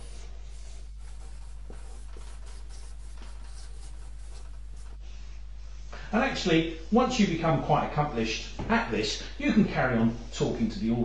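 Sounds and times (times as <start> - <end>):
marker drawing on paper: 0.0 - 5.0
steady low hum: 0.0 - 11.0.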